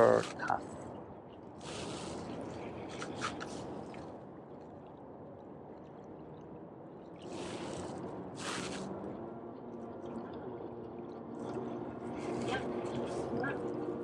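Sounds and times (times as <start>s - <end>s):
small waves washing against rocks: 7.3s - 8.9s.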